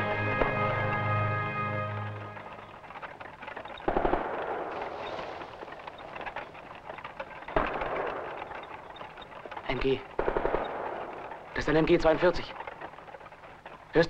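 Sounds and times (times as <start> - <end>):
machine-gun fire bursts: 3.8 - 6.3, 7.4 - 12.2.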